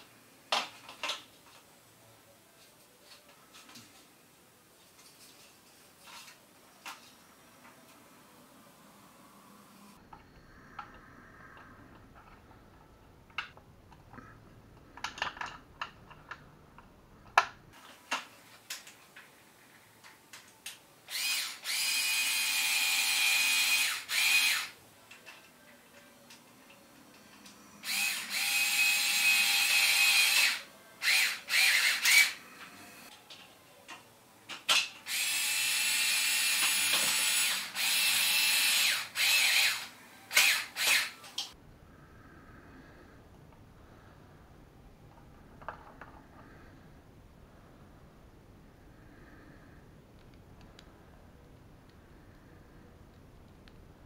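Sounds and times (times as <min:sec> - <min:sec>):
cordless drill running: 0:21.1 - 0:24.8, 0:27.8 - 0:33.1, 0:35.1 - 0:41.2.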